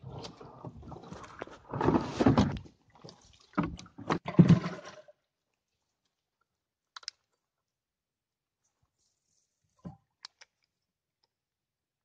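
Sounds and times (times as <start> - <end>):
knocks and scraping in wooden boat: 0.0 - 5.2.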